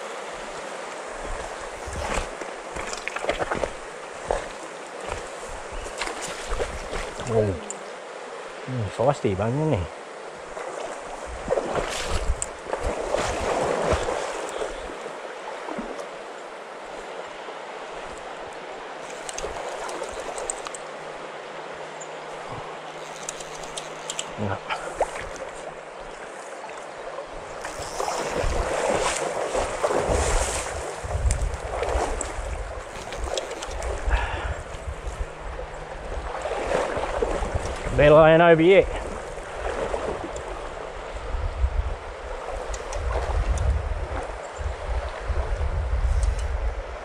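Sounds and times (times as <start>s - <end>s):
water splashing in stony river: 0.0s - 8.7s, 9.9s - 45.7s
wind on microphone: 1.1s - 4.4s, 11.1s - 15.0s, 27.4s - 47.0s.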